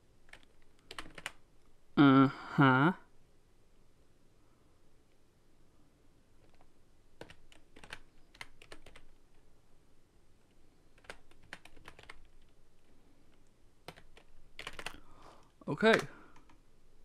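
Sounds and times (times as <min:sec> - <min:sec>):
faint keyboard typing: 0:00.2 - 0:01.5, 0:06.4 - 0:09.5, 0:10.4 - 0:16.7.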